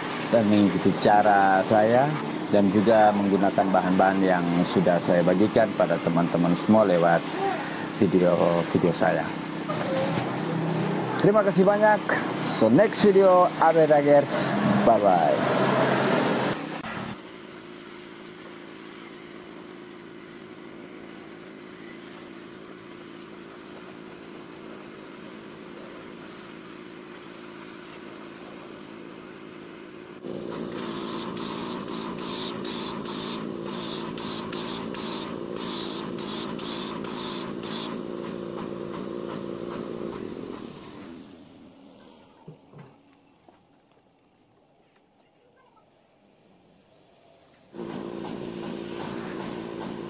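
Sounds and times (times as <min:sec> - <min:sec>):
pressure washer jet hissing on metal: 0:00.0 - 0:42.2, 0:47.8 - 0:50.0.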